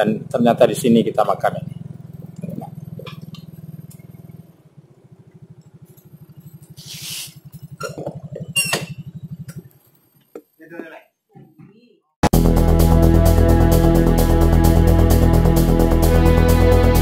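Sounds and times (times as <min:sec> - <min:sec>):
scooter engine idling: 0:00.0 - 0:10.6
short hiss: 0:06.7 - 0:07.4.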